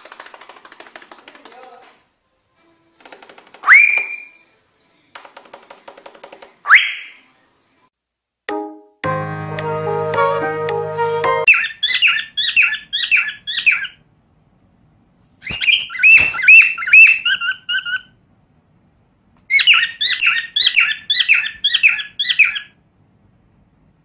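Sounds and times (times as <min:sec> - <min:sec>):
cockatiel chirping: 0:11.5 - 0:14.0, 0:15.4 - 0:18.2, 0:19.5 - 0:22.8.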